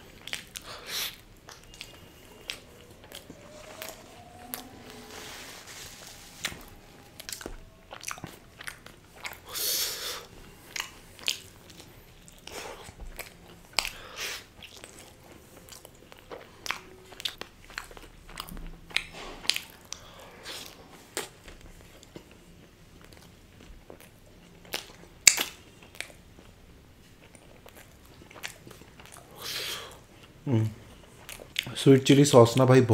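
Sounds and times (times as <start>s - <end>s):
wet chewing clicks: 0.1s - 3.3s, 7.3s - 22.2s, 23.0s - 26.6s, 27.2s - 30.4s.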